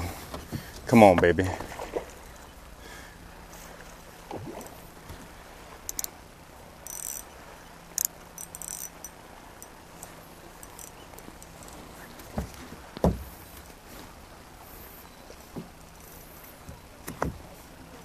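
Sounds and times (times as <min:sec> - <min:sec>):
fishing reel winding: 0:05.9 - 0:06.1, 0:06.8 - 0:07.3, 0:07.9 - 0:11.8.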